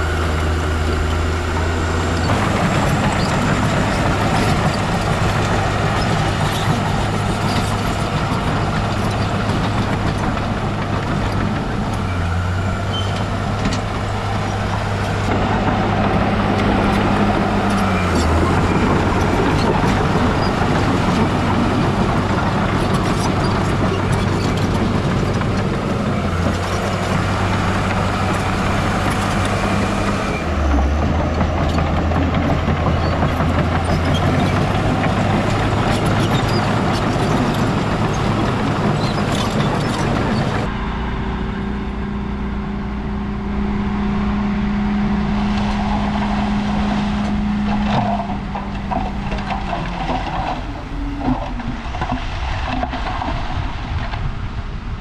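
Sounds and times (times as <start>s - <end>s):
rattling and clanking: 0.0s - 40.8s, 44.3s - 54.4s
heavy diesel engine under load: 0.0s - 55.0s.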